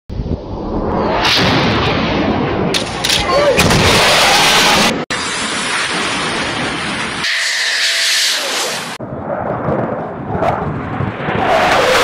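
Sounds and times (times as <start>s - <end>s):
jet roar: 0.1s - 12.0s
fighter jet passing low: 3.9s - 12.0s.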